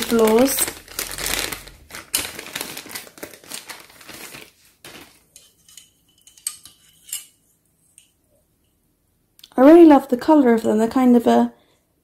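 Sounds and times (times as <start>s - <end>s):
plastic bag rustling: 0.0s - 5.6s.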